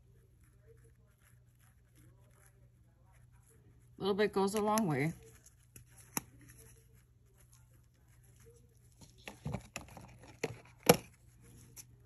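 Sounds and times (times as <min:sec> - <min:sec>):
faint brushing: 0:00.0 - 0:12.0.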